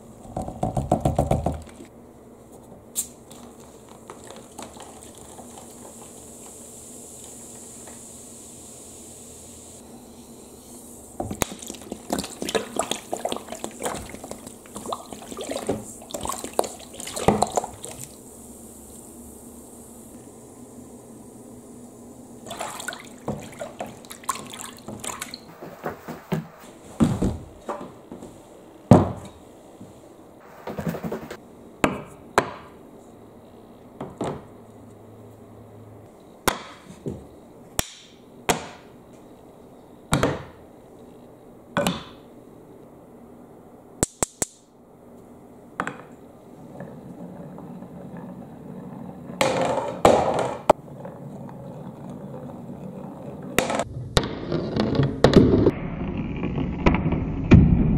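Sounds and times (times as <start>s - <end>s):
wooden blocks knocking on boards: 0.3s - 1.9s, 36.5s - 37.2s, 41.8s - 42.2s, 49.4s - 50.8s
water splashing in a tub: 11.5s - 18.1s, 22.4s - 25.5s.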